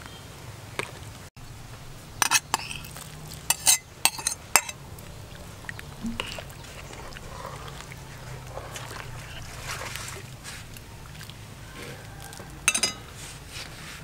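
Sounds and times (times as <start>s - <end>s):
spoon scraping metal pot: 2.2s - 4.8s, 6.0s - 10.7s, 12.6s - 13.4s.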